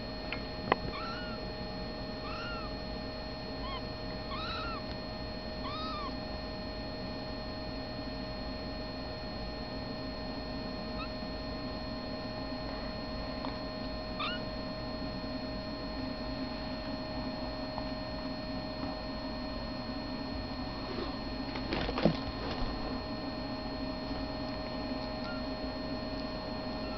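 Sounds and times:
steady electrical hum: 0.0 - 26.9
kittens mewing: 0.9 - 1.4, 2.2 - 2.7, 3.6 - 4.9, 5.6 - 6.2, 14.2 - 14.4, 25.2 - 25.5.

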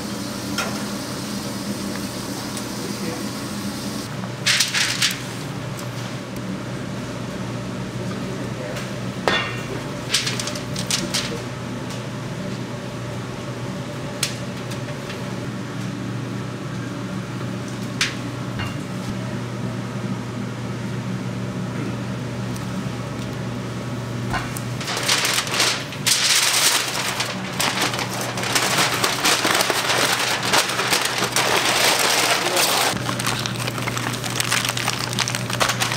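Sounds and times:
aluminum foil crinkling: 4.5 - 5.3, 10.0 - 11.4, 24.8 - 35.9.

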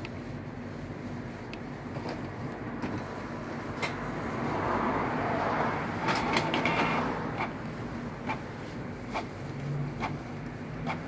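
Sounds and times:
print mechanism whirring: 0.0 - 11.0
printer clicks: 6.0 - 8.5.

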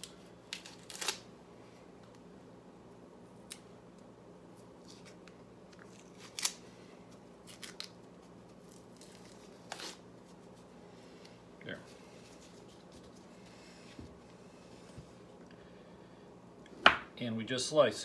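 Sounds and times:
salami casing crackling as peeled: 0.0 - 1.4, 3.3 - 11.4.

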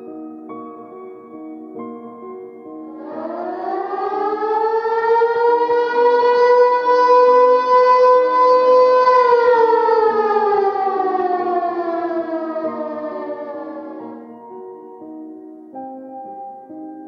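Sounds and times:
soft piano music: 0.0 - 17.0
siren winding down: 3.0 - 14.2.

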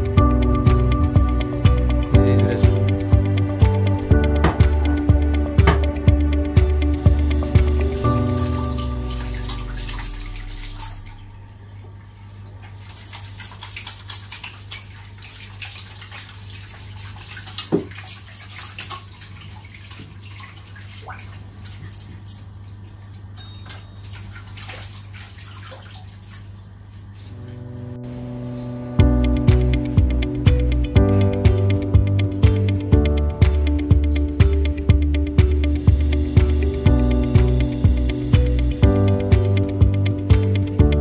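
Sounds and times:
music: 0.0 - 11.1, 27.4 - 41.0
water splashing and dripping: 3.4 - 27.1
tap water on washing hands: 4.4 - 6.2, 15.7 - 22.4.

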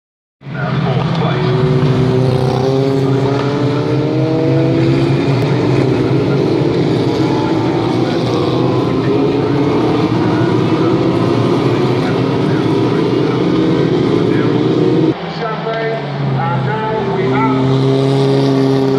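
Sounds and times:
racing car engines accelerating: 0.4 - 18.9.

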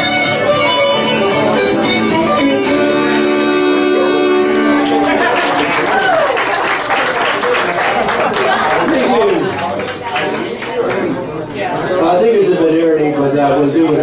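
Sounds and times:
folk tune on pipes fiddle and guitar: 0.0 - 5.1
audience whoops: 4.7 - 7.5
audience applause: 4.7 - 11.1.

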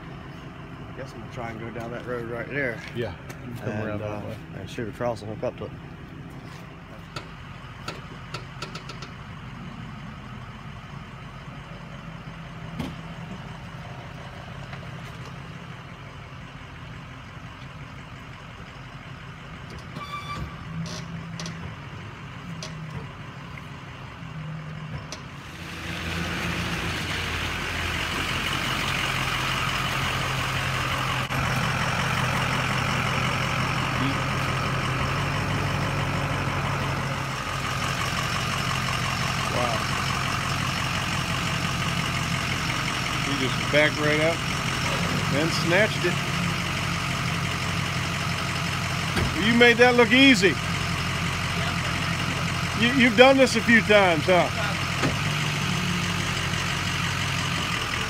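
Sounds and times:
tow truck engine running: 0.0 - 58.0.

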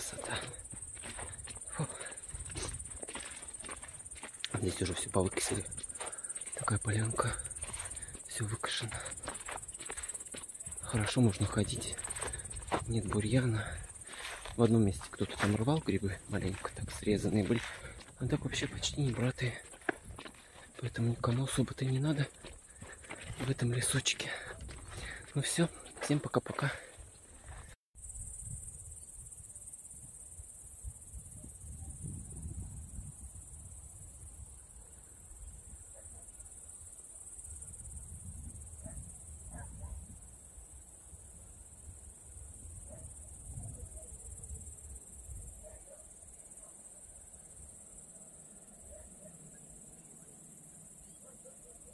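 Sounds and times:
grasshoppers chirring: 0.0 - 28.3
wind rumble on microphone: 28.1 - 34.7, 37.4 - 40.6, 41.2 - 45.7.

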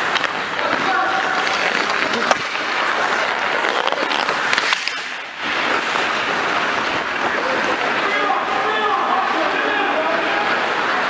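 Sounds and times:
skate blades scraping ice: 0.0 - 8.8.

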